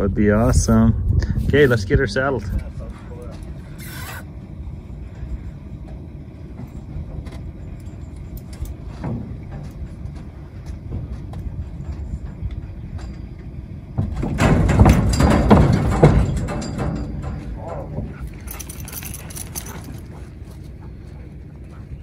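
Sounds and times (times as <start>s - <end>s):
steady low rumble: 0.0s - 22.0s
hooves thumping on trailer floor: 5.1s - 21.8s
trailer gate clicks and clanks: 6.6s - 20.2s.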